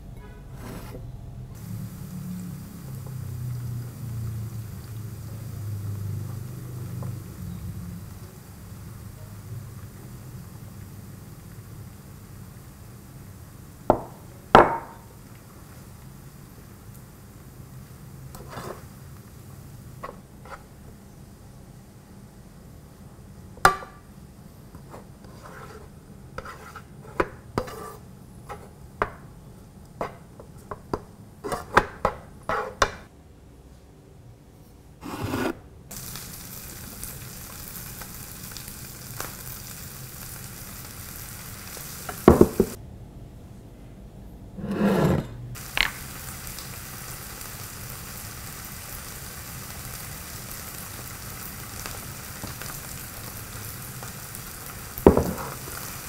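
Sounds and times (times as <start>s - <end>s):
spatula scraping frying pan: 0.5s - 1.0s, 18.3s - 18.9s, 24.8s - 28.7s, 31.4s - 31.8s, 32.4s - 32.8s, 35.0s - 35.6s
rice sizzling in hot oil: 1.6s - 21.0s, 35.9s - 42.8s, 45.6s - 56.0s.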